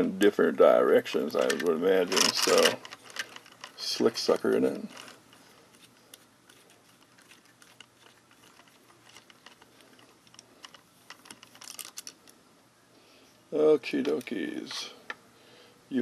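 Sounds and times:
screwdriver clicks and scrapes: 1.4s - 3.8s, 4.4s - 12.2s.

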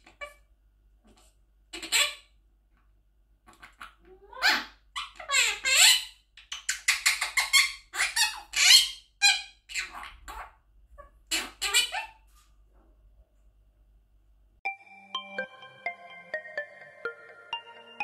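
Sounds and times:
parakeet squeaky calls: 1.7s - 2.3s, 4.3s - 12.2s.

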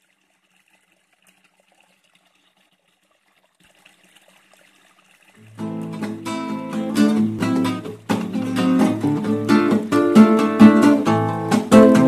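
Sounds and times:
stream water trickling: 0.0s - 11.7s
acoustic guitar playing: 5.4s - 12.0s.

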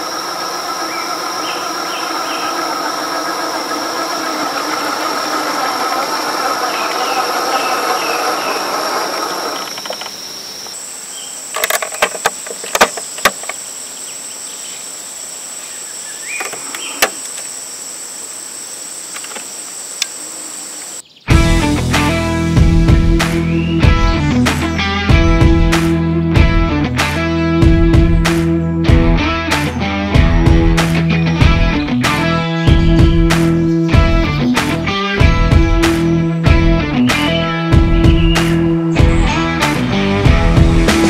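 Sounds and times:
electric motor whining: 0.0s - 10.8s
insects buzzing: 0.0s - 26.2s, 29.2s - 41.0s.

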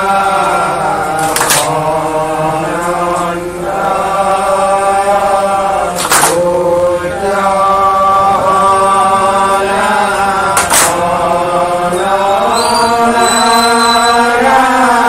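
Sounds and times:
men chanting in unison: 0.0s - 15.0s
group hand claps: 1.1s - 3.4s, 5.8s - 7.3s, 9.5s - 14.7s.

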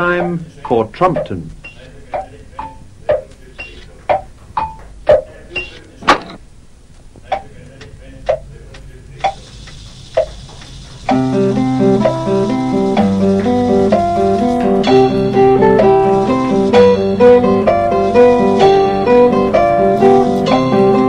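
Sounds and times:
clock ticking: 0.0s - 6.4s, 7.3s - 20.7s
plucked guitar tune with bass: 11.1s - 21.0s.

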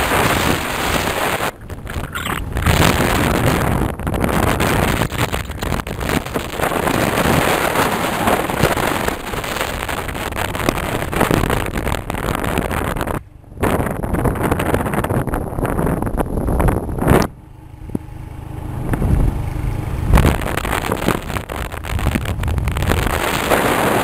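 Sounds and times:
wind buffeting microphone: 0.0s - 18.0s, 18.8s - 24.0s.

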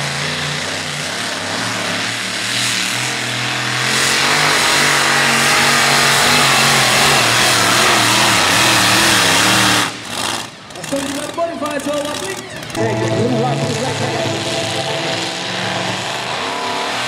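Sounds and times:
supercharged engine running hard: 0.0s - 11.4s, 12.0s - 17.0s.

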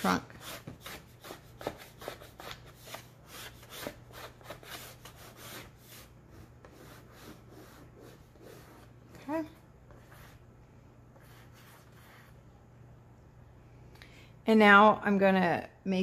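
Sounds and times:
chalk scratching on board: 0.0s - 9.0s, 9.9s - 10.5s, 11.1s - 12.4s.

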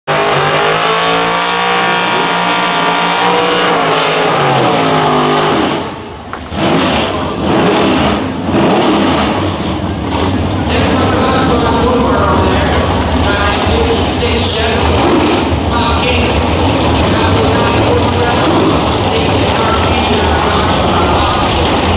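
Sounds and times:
racing engines revving: 0.1s - 21.9s.

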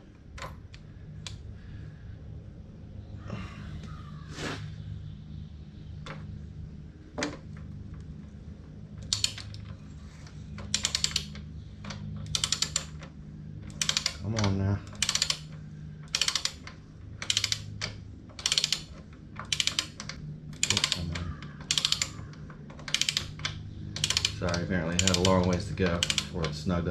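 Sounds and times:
ratchet wrench clicking: 9.0s - 9.7s, 10.6s - 13.1s, 13.7s - 26.6s.

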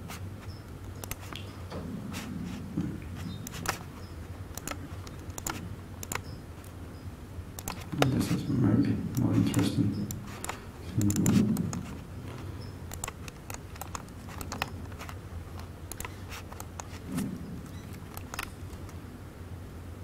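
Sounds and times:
low room hum: 0.0s - 20.0s
laptop keyboard clicks: 0.9s - 1.4s, 4.5s - 6.3s, 7.6s - 8.2s, 12.9s - 17.0s, 17.7s - 19.0s.

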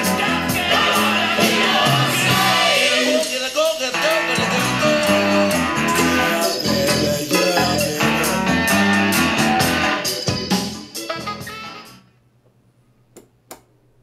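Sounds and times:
guitar music from speakers: 0.0s - 12.1s
faint low electrical hum: 12.0s - 14.0s.

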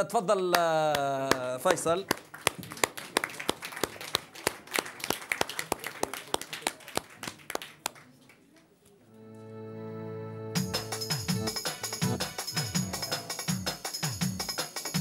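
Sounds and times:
small group applauding: 0.5s - 8.8s.

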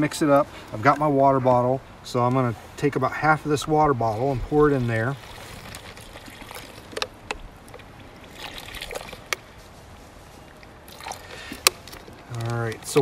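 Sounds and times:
water trickling into a bag: 4.1s - 13.0s
plastic bag crinkling: 11.0s - 13.0s.

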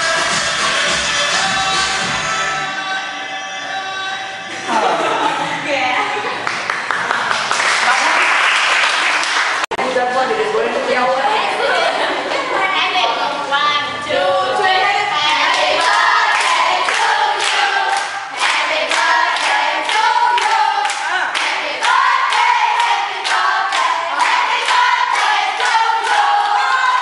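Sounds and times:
hands clapping in rhythm: 6.4s - 9.7s, 15.4s - 27.0s
women singing together: 11.6s - 27.0s.

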